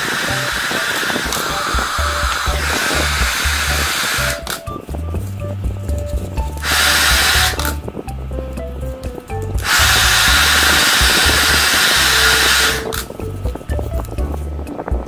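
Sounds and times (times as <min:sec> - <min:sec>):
hissing tool noise: 0:00.0 - 0:04.8, 0:06.4 - 0:07.8, 0:09.6 - 0:13.1
background music: 0:00.0 - 0:15.0.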